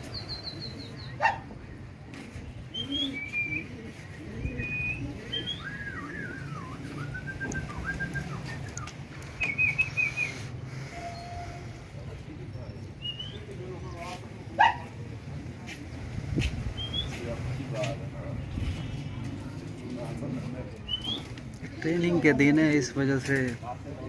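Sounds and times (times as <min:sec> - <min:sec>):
small birds chirping: 0:00.0 - 0:01.4, 0:02.7 - 0:10.6, 0:15.6 - 0:17.4, 0:20.8 - 0:21.5.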